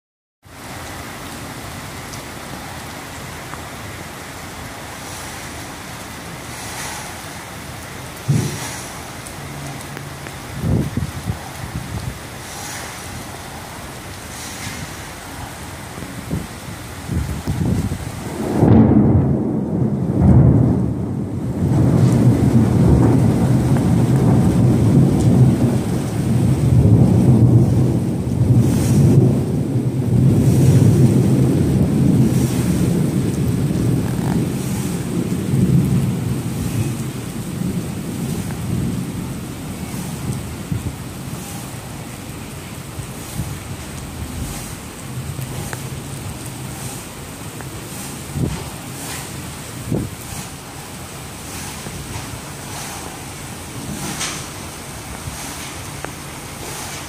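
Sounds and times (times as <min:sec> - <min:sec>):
heavy rain: 0:00.4 - 0:57.0
loud low rolling rumble: 0:02.4 - 0:56.9
brief low thump: 0:08.3 - 0:08.8.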